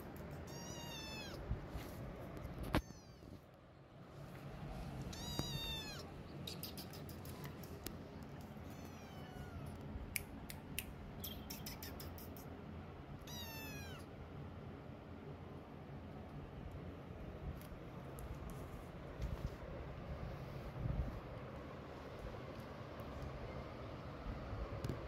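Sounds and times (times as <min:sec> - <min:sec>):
kitten meowing: 0:00.4 - 0:01.4, 0:02.7 - 0:03.3, 0:05.1 - 0:07.5, 0:08.6 - 0:09.8, 0:13.2 - 0:14.1.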